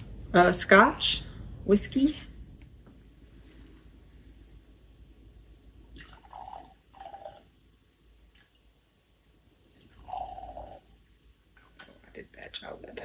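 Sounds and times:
liquid pouring into glass: 0:06.0 - 0:07.6, 0:09.7 - 0:11.0.

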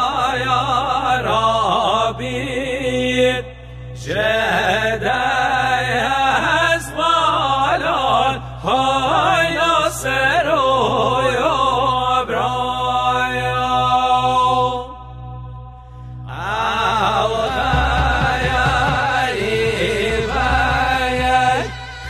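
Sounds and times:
steady held drone: 0:02.2 - 0:22.0
person singing ornamented melody: 0:16.3 - 0:22.0.

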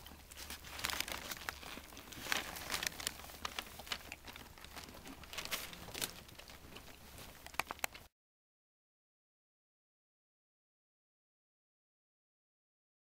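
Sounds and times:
bedding rustling: 0:00.2 - 0:07.6.

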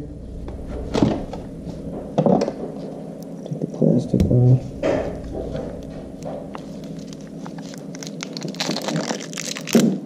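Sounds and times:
plastic wrapping crinkling: 0:06.5 - 0:10.0.

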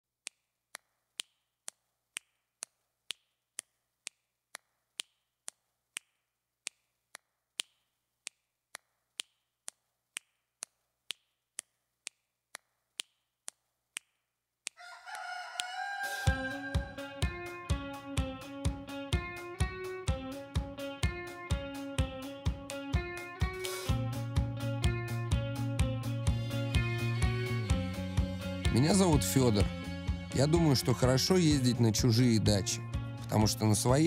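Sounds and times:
falling multi-pitch call: 0:14.8 - 0:17.5.

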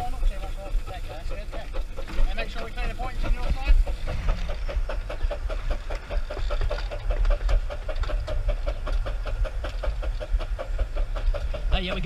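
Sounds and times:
low rumble of moving engine: 0:00.0 - 0:12.0
steam locomotive chuffing: 0:00.0 - 0:12.0.

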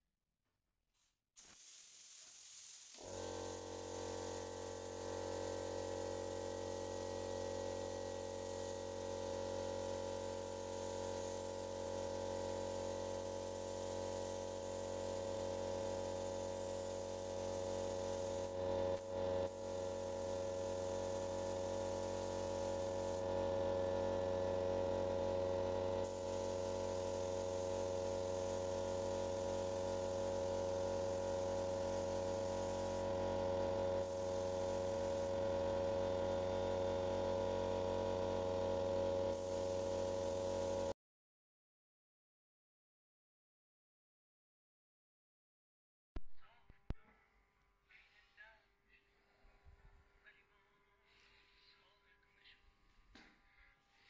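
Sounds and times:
spray gun hissing: 0:01.4 - 0:09.2, 0:09.8 - 0:23.4, 0:26.0 - 0:35.5, 0:39.3 - 0:40.9
air supply machine hum: 0:01.4 - 0:40.9.

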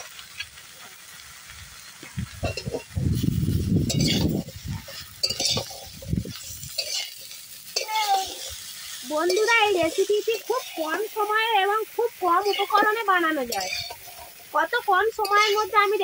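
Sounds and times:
light sizzling: 0:00.0 - 0:16.0
metal spatula scraping pan: 0:02.4 - 0:11.1, 0:12.3 - 0:14.5, 0:15.2 - 0:15.8.

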